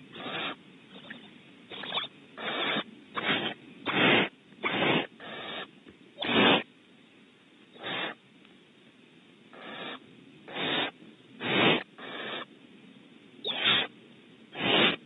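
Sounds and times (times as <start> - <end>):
owlets rasping hisses: 2.7 - 5.4, 10.5 - 12.4, 14.5 - 15.0.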